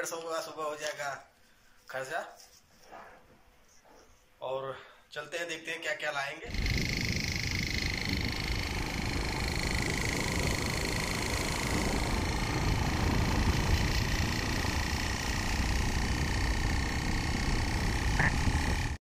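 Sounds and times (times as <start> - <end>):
steady high whine: 6.5 - 19.0
wind on microphone: 6.5 - 19.0.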